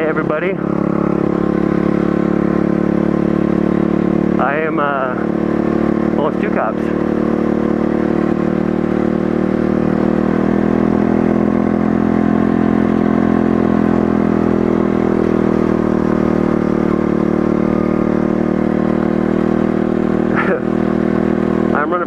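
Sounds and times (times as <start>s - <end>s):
motorbike engine running: 0.0s - 22.0s.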